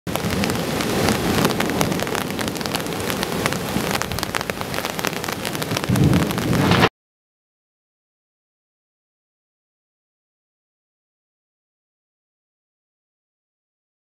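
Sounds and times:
heavy rain falling: 0.1s - 6.9s
sharp raindrop hits: 0.1s - 6.9s.

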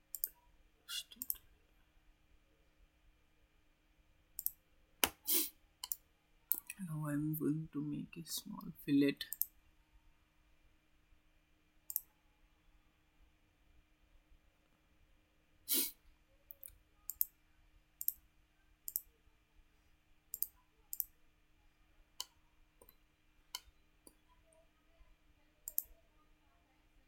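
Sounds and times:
faint steady hum: 0.0s - 27.0s
mouse button clicks: 25.7s - 25.9s.

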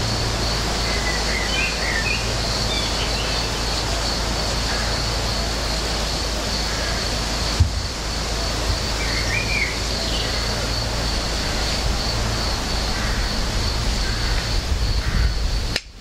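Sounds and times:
low rumble and hiss: 0.0s - 16.0s
bird chirping: 0.8s - 3.8s, 9.0s - 10.6s.

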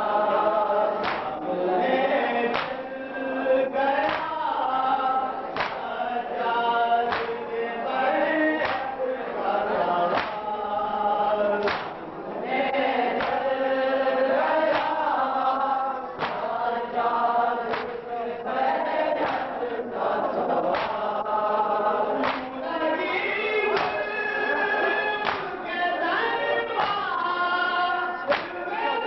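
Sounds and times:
men chanting a lament in unison: 0.0s - 29.0s
hands beating on bare chests: 1.0s - 1.4s, 2.5s - 2.8s, 4.1s - 4.4s, 5.6s - 5.9s, 7.1s - 7.4s, 8.6s - 8.9s, 10.1s - 10.5s, 11.7s - 12.0s, 14.7s - 15.0s, 16.2s - 16.5s, 20.7s - 21.1s, 22.2s - 22.5s, 25.2s - 25.6s.

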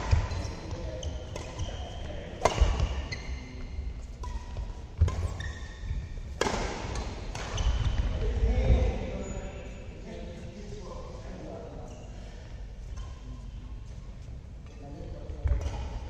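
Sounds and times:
court shoes squeaking: 0.0s - 9.9s, 12.8s - 16.0s
racket striking shuttlecock: 1.3s - 1.6s, 2.4s - 3.0s, 6.4s - 7.9s.

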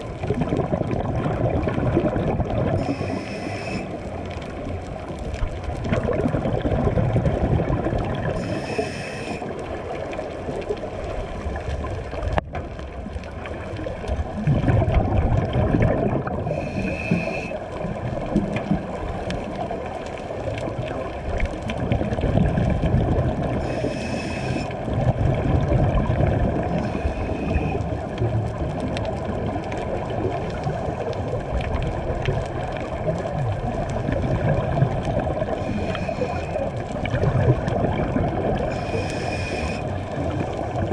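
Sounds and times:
exhaled bubbles rumbling underwater: 0.0s - 40.9s
regulator inhalation hiss: 2.8s - 4.0s, 8.4s - 9.4s, 16.5s - 17.6s, 23.6s - 24.7s, 26.7s - 27.8s, 35.6s - 36.7s, 38.7s - 39.8s.

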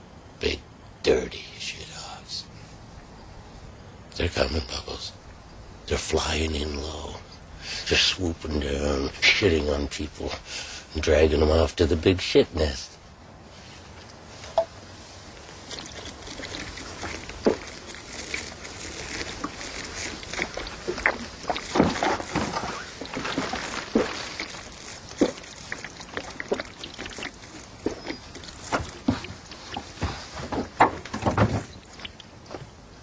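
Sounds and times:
man gulping from a bottle: 15.4s - 30.0s
liquid sloshing in a bottle: 15.4s - 32.6s.

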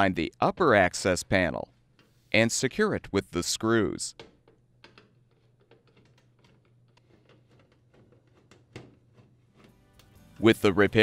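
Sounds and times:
screwdriver clicks and scrapes: 4.8s - 9.8s.

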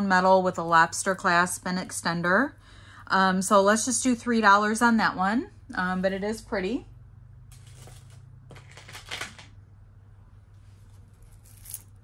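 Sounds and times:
jewelry rustling and clinking: 10.8s - 12.0s.

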